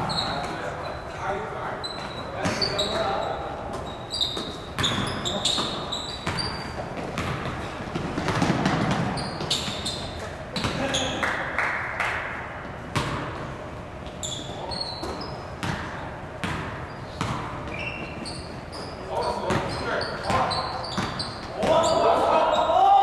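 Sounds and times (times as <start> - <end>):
sneakers squeaking: 0.0 - 11.4, 12.6 - 23.0
basketball bouncing on wooden floor: 3.8 - 9.8, 12.9 - 13.4, 15.0 - 17.8, 19.5 - 21.8
players calling out: 18.8 - 23.0.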